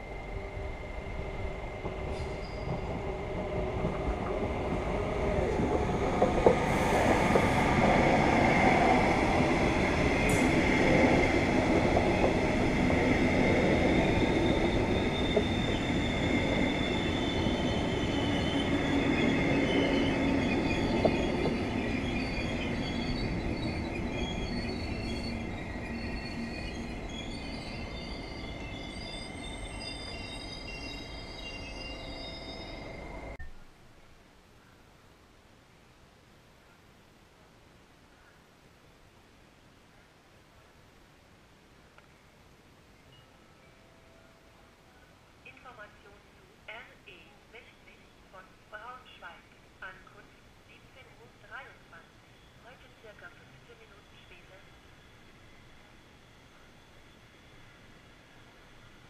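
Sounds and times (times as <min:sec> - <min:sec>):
train passing rumble: 0:00.0 - 0:33.4
wheels squealing: 0:13.4 - 0:33.4.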